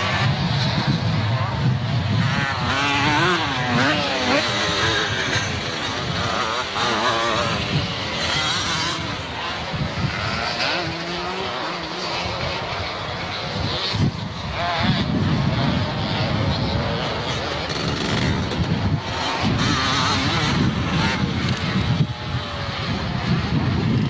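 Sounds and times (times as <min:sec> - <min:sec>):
dirt bikes revving past: 0:00.0 - 0:24.0.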